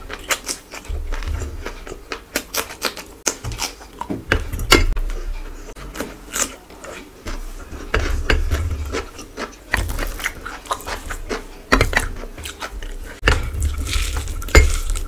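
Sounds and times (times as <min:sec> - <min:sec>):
eating sounds: 0:05.8 - 0:15.0.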